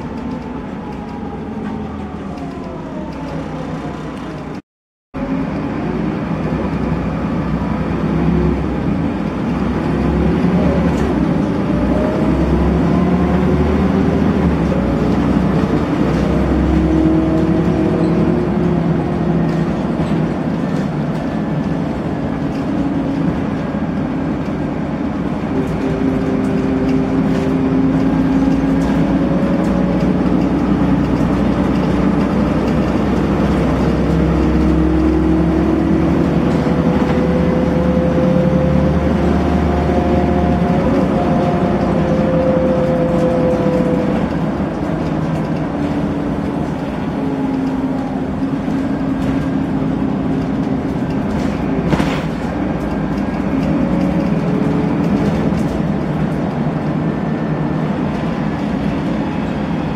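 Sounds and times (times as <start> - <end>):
bus engine rumble: 0.0 - 4.6, 5.2 - 59.9.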